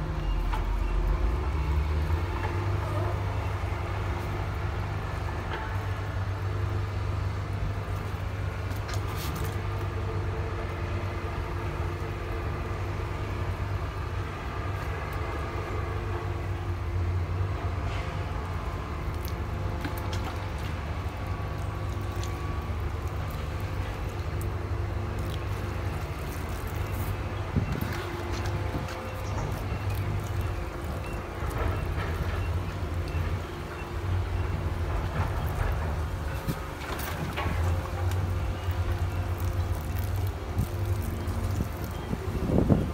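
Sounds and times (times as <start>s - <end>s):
low mechanical hum: 0.0s - 42.9s.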